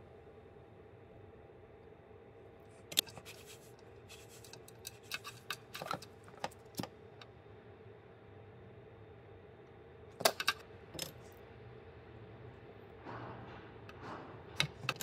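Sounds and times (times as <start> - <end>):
faint steady hum: 0.0 - 15.0
small parts clicking and scraping: 2.8 - 6.9.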